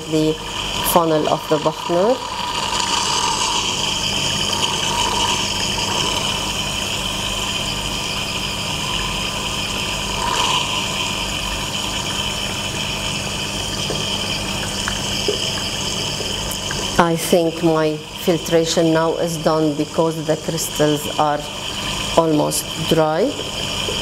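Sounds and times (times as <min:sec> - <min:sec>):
tap water rushing into sink: 0:10.1 - 0:17.0.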